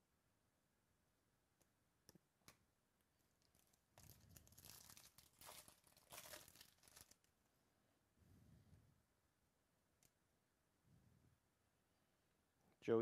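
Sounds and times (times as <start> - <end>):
foil wrapper tearing and crinkling: 3.4 - 7.3.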